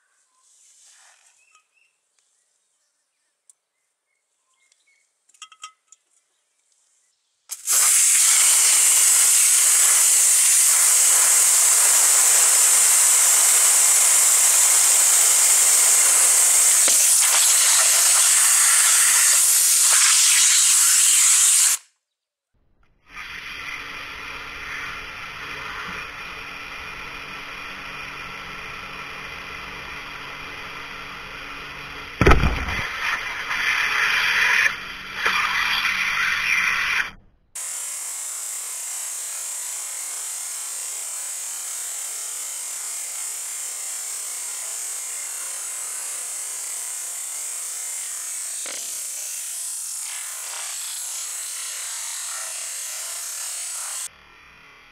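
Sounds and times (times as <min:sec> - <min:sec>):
pressure washer spray hissing: 0:07.5 - 0:21.8.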